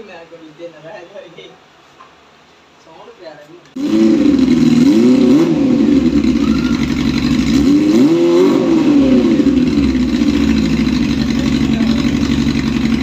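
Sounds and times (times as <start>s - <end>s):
motorcycle engine revving and idling: 3.8s - 13.0s.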